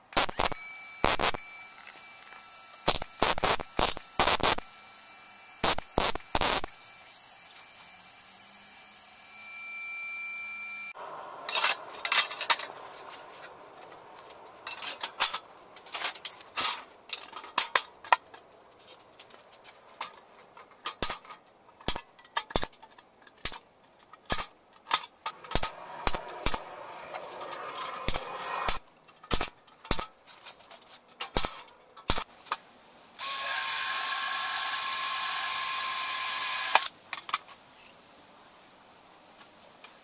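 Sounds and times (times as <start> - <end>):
metal sheets clanking: 14.6 - 18.2
steady hum: 25.2 - 29.0.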